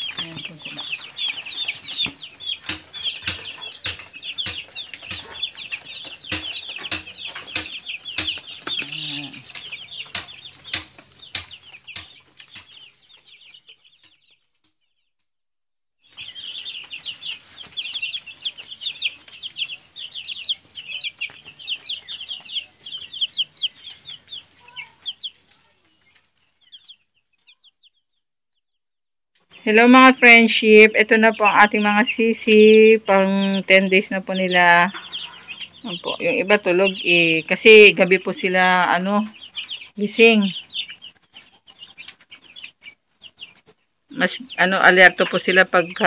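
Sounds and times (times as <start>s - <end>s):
chicks peeping: 0.0s - 14.8s, 16.0s - 28.7s, 29.4s - 46.0s
sharp ticks: 0.8s - 13.2s.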